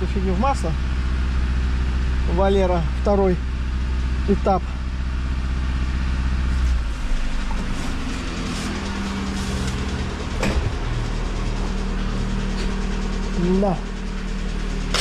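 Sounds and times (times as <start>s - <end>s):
deep hum: 0.0s - 15.0s
car engine knocking: 7.2s - 15.0s.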